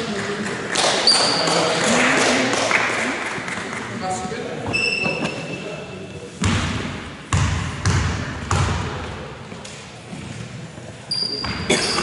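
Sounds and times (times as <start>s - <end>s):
short high squeak: 4.7s - 5.7s, 11.1s - 12.0s
basketball bouncing on wooden floor: 6.4s - 9.1s.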